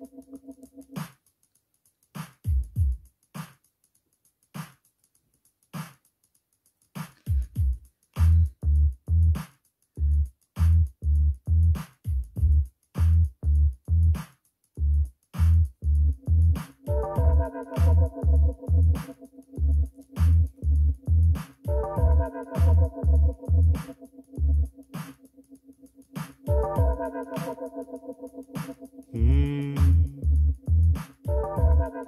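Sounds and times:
drum machine beat: 0:00.0 - 0:32.0
synthesizer chord: 0:16.9 - 0:18.9, 0:21.7 - 0:23.7, 0:26.5 - 0:28.6, 0:31.3 - 0:32.0.

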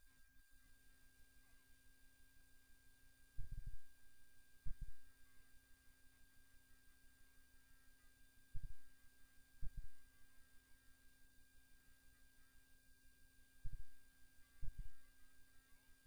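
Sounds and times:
faint electrical tone: 0:00.0 - 0:16.0
low hum: 0:03.4 - 0:05.3, 0:13.6 - 0:15.2.

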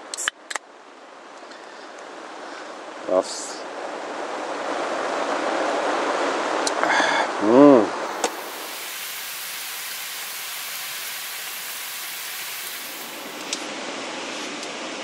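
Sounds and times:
heavy rain falling: 0:08.0 - 0:13.6.

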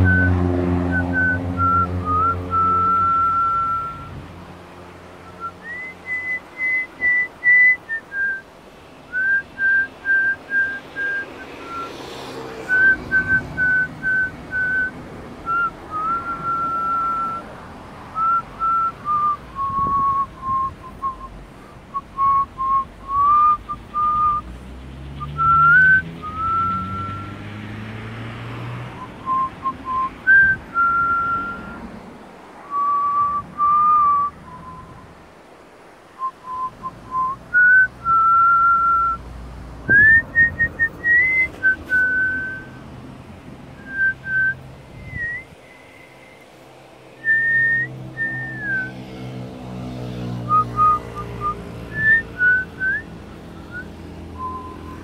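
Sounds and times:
person whistling a tune: 0:00.0 - 0:04.2, 0:05.2 - 0:08.4, 0:09.1 - 0:11.9, 0:12.7 - 0:17.5, 0:18.2 - 0:24.5, 0:25.2 - 0:27.5, 0:29.0 - 0:31.9, 0:32.7 - 0:35.1, 0:36.2 - 0:39.2, 0:39.9 - 0:42.8, 0:43.8 - 0:46.0, 0:47.2 - 0:49.0, 0:50.5 - 0:55.0.

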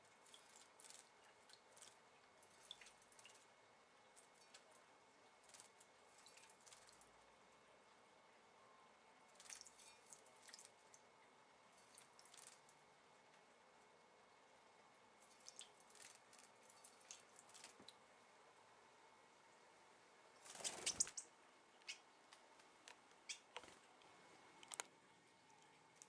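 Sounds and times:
small bird splashing in water: 0:00.2 - 0:03.5, 0:05.4 - 0:07.1, 0:09.3 - 0:11.0, 0:11.8 - 0:12.8, 0:15.2 - 0:18.0, 0:20.4 - 0:21.3
bird wings flapping: 0:20.4 - 0:21.2.

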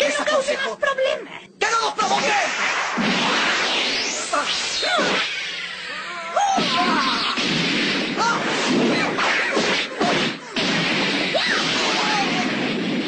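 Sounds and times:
continuous noisy din: 0:01.7 - 0:13.0
cartoon fight hits: 0:02.0 - 0:05.6, 0:06.3 - 0:13.0
crashes: 0:02.0 - 0:13.0
whooshes: 0:02.1 - 0:06.0.

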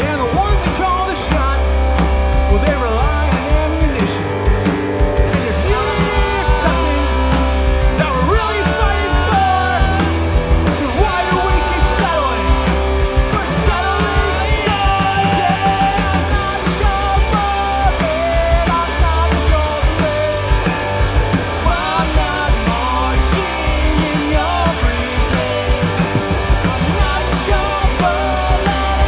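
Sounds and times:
bass guitar: 0:00.0 - 0:29.0
drums: 0:00.0 - 0:29.0
electric guitar: 0:00.0 - 0:29.0
person singing: 0:05.3 - 0:20.8, 0:21.6 - 0:29.0.

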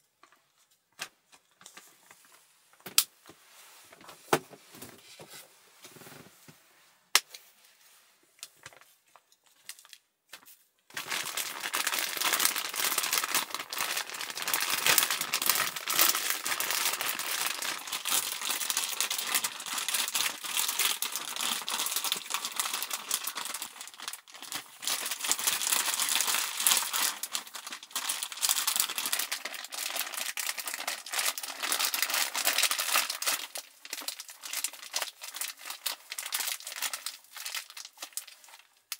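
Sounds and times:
plastic bag crinkling: 0:08.4 - 0:38.9.

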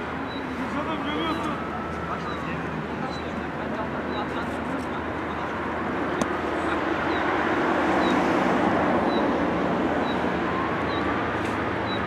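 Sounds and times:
rushing background noise: 0:00.0 - 0:12.0.

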